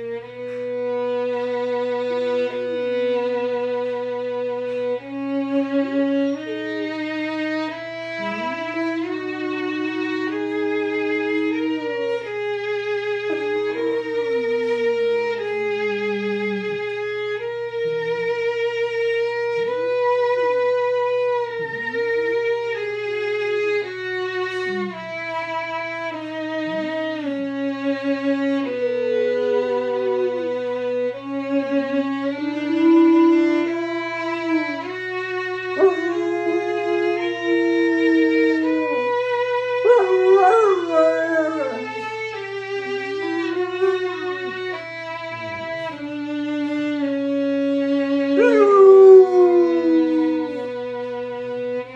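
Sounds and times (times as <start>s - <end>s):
violin slow melody: 0.0s - 51.9s
dog howling: 28.4s - 44.8s, 48.2s - 51.3s.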